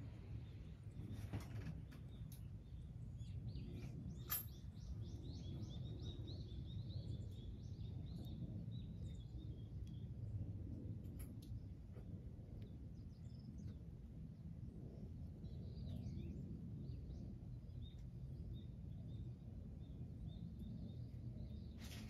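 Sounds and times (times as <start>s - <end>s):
low outdoor rumble: 0.0s - 22.0s
small bird singing: 1.8s - 10.1s, 15.4s - 22.0s.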